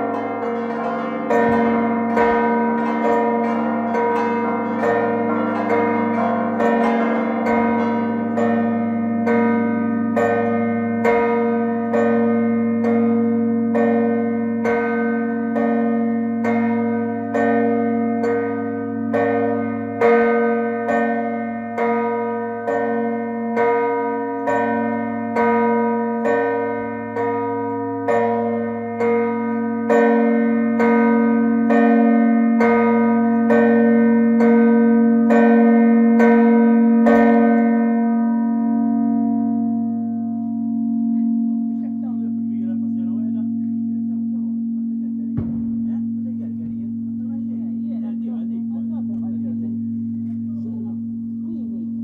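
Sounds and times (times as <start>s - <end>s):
church bells ringing: 0.0s - 52.0s
bell hum: 37.2s - 52.0s.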